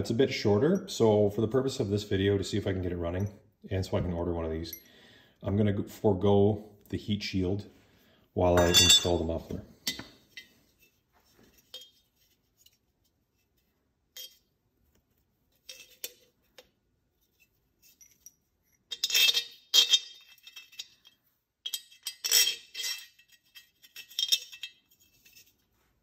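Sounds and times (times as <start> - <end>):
metal parts clinking and clattering: 8.6 - 9.3, 17.8 - 25.6.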